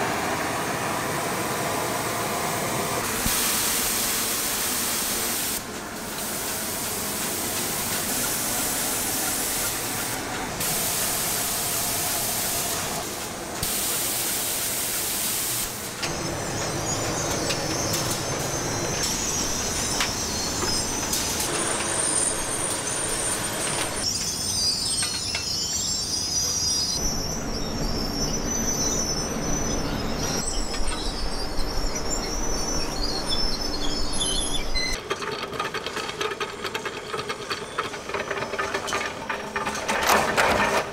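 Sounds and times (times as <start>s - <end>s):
spray guns hissing: 3.1s - 16.0s
high squealing tones: 16.1s - 35.0s
machinery clattering: 34.4s - 40.9s.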